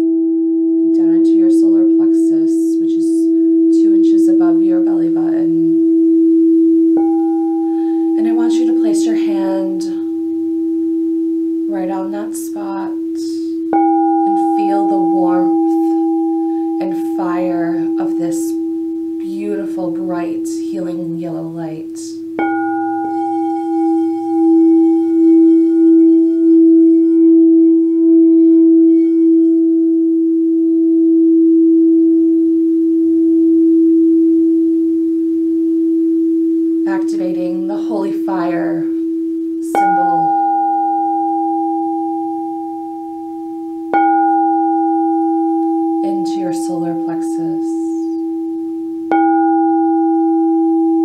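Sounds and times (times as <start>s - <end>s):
singing bowl low hum: 0.0s - 51.0s
singing bowl struck with wand: 5.6s - 11.8s, 12.7s - 19.7s, 22.4s - 32.3s, 37.1s - 51.0s.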